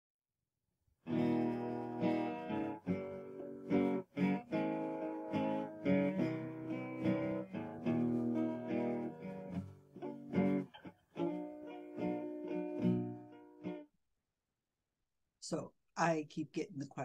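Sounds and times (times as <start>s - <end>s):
strummed guitar chords: 1.1s - 13.8s.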